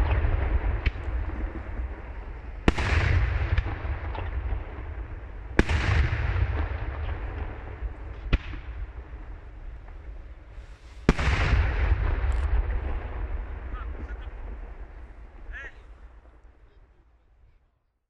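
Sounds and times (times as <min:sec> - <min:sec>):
fireworks bangs with echo: 0:00.0 - 0:16.6
small fireworks pops: 0:00.0 - 0:17.0
low rumble: 0:00.0 - 0:17.3.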